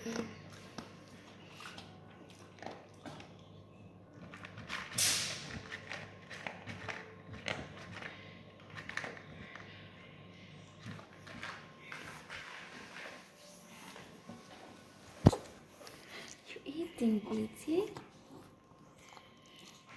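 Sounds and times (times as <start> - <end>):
dog crunching dry kibble: 0.5 - 9.8.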